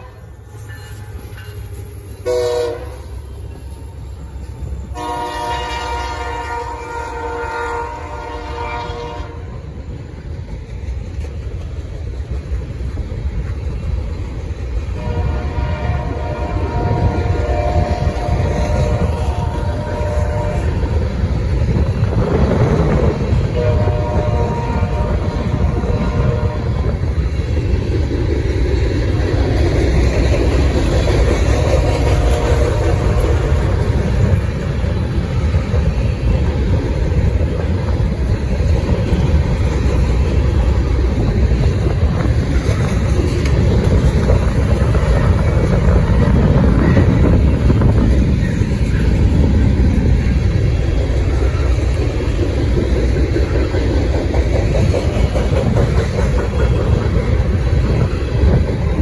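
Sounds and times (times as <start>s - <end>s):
steel wheels rumbling on rails: 0.0s - 59.0s.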